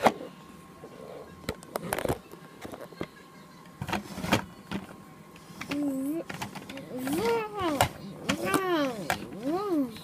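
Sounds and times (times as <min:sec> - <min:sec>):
plastic toys clicking and knocking: 0:05.6 - 0:10.0.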